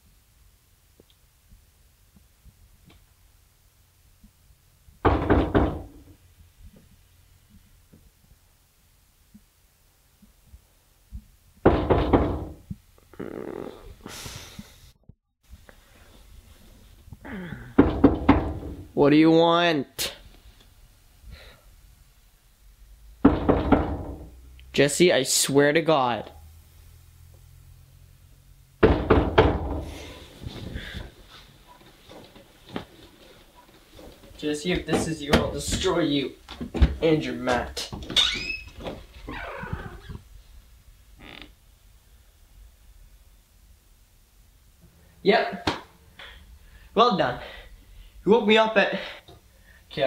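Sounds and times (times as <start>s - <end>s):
rapid knocking on a door: 5.0s - 6.1s, 11.6s - 12.6s, 17.8s - 18.8s, 23.2s - 24.3s, 28.8s - 29.9s
soft rustling: 15.5s - 17.2s, 30.0s - 37.0s.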